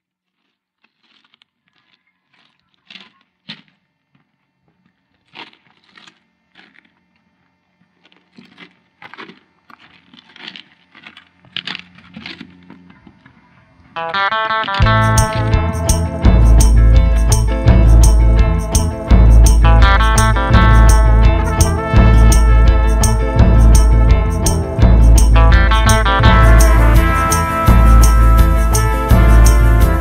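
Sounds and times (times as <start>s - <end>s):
footsteps crunching on ballast: 0.0s - 17.8s.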